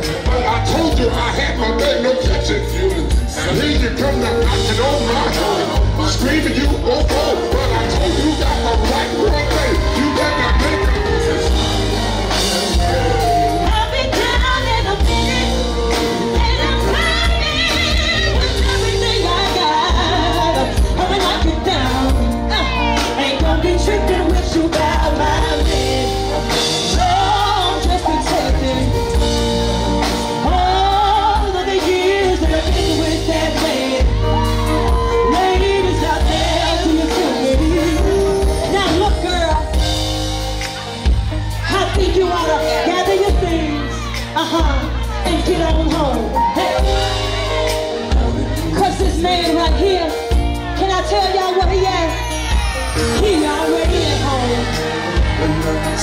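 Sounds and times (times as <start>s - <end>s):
man singing: 0.0s - 14.2s, 15.0s - 40.2s, 53.0s - 56.0s
live band music: 0.0s - 56.0s
woman singing: 6.6s - 39.8s, 41.6s - 56.0s.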